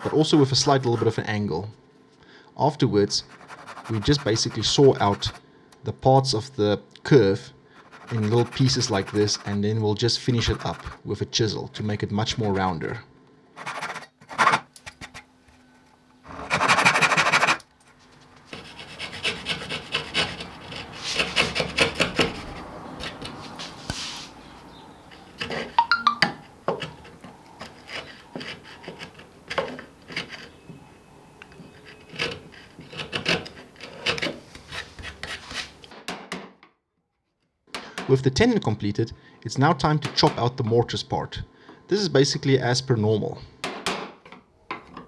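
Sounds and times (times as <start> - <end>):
chisel scraping wood: 3.2 - 5.4, 7.8 - 11.0, 13.6 - 14.6, 18.5 - 24.4, 25.0 - 25.8, 26.4 - 30.8, 31.6 - 35.8
saw cutting wood: 3.3 - 5.4, 7.8 - 9.7, 18.5 - 23.5.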